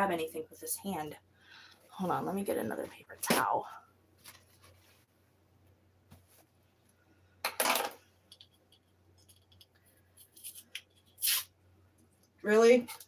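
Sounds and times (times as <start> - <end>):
paper towel rustling: 4.2 - 5.2
faint clicks and scratching on jar cap: 8.3 - 11.0.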